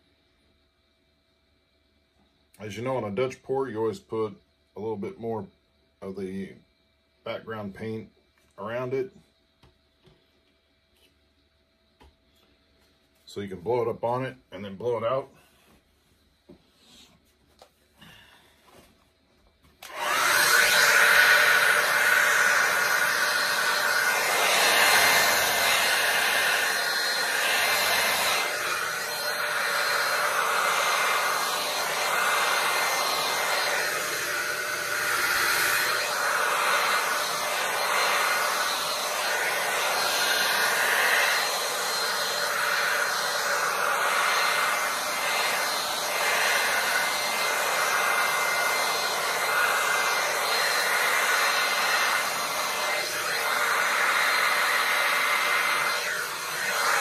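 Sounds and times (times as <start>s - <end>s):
hair dryer blowing air: 19.7s - 57.0s.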